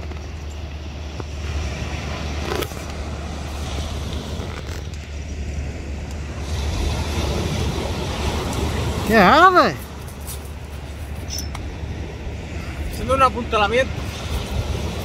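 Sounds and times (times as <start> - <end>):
small waves on shingle beach: 0.0 - 15.0
wind rumbling on microphone: 0.0 - 15.0.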